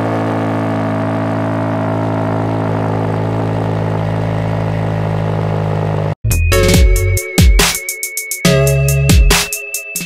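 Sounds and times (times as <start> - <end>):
car engine idling: 0.0 - 6.2.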